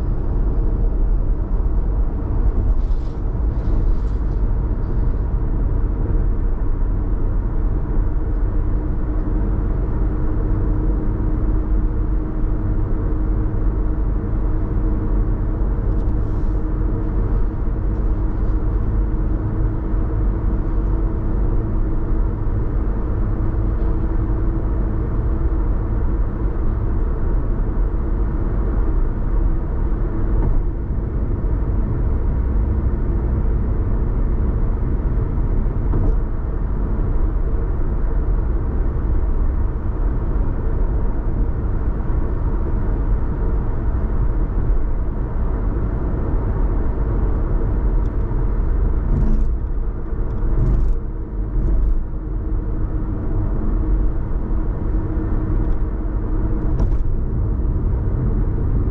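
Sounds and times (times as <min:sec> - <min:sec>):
car road and engine rumble: 0:00.0 - 0:58.9.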